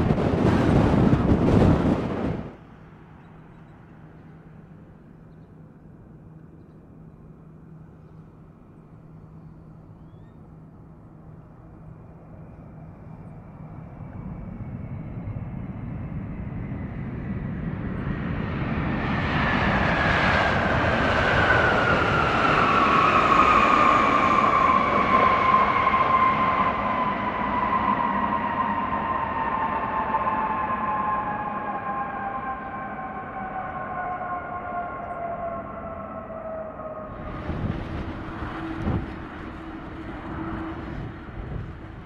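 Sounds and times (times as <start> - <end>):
jet engine rumble: 0.0 - 42.0
fan whine sliding down in pitch: 19.3 - 42.0.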